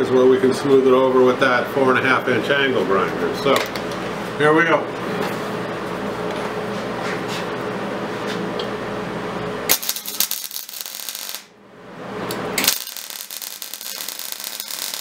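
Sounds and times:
steady hum: 0.0s - 15.0s
welding arc crackling and hissing: 9.7s - 11.5s, 12.6s - 15.0s.

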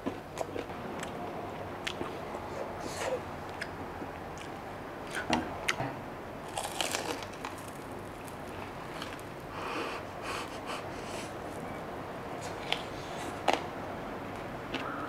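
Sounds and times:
quiet chewing: 0.0s - 5.8s
crunchy bites into fried pork: 6.5s - 8.5s.

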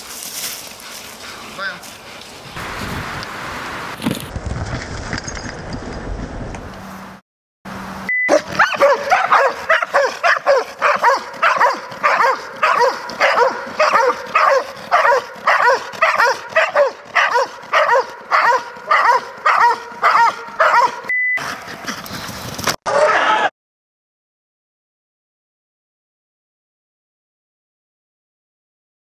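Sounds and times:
dogs barking rapidly: 8.3s - 21.9s.

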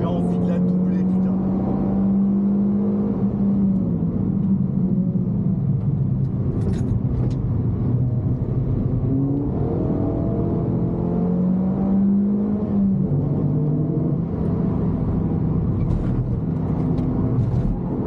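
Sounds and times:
car engine revving: 0.0s - 4.8s.

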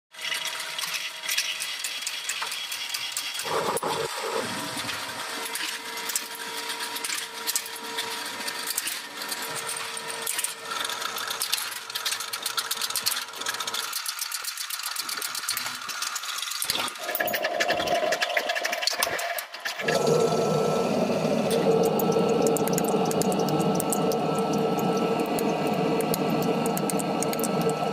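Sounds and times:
machinery running: 3.4s - 13.7s, 19.8s - 27.9s
steady tone: 19.8s - 27.9s.

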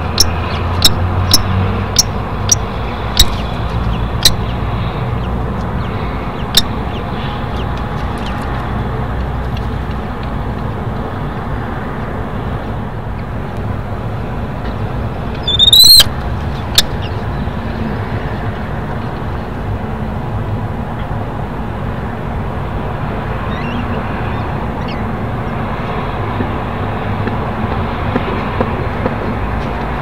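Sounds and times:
steady low rumble: 0.0s - 30.0s
kestrel shrill calls: 15.4s - 16.1s.

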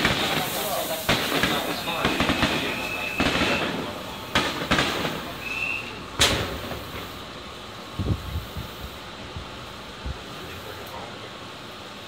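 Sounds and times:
fireworks bangs: 0.0s - 7.2s.

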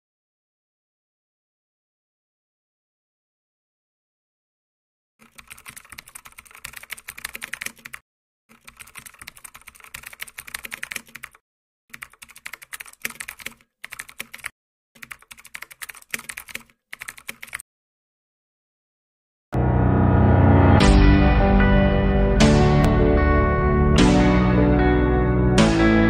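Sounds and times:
computer keyboard typing: 5.2s - 17.6s.

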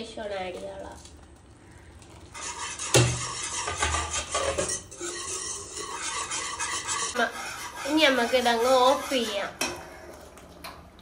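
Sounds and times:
whisk scraping a saucepan: 2.2s - 10.2s.

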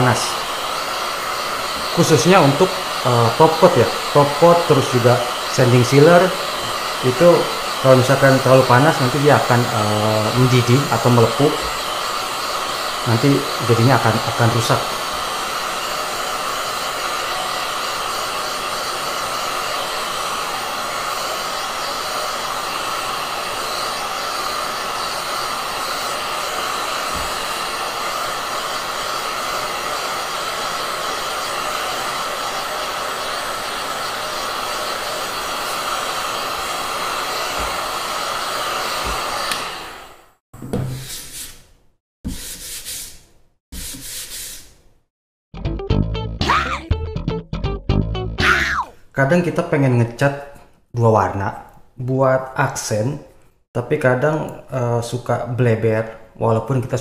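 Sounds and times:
heat gun blowing air: 0.0s - 41.6s.

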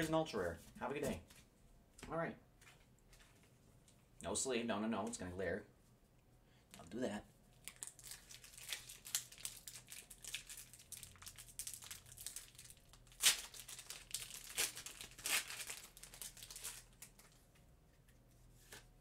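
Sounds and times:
foil wrapper crinkling: 7.6s - 17.4s.

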